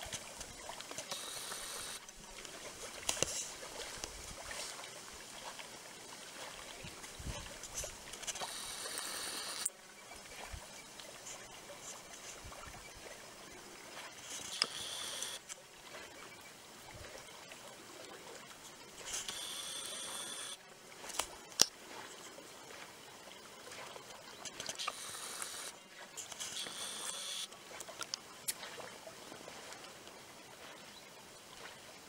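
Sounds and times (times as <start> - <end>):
soft high hiss: 0.0 - 9.7
faint water sounds: 0.0 - 32.0
sharp clicks: 8.2 - 9.7.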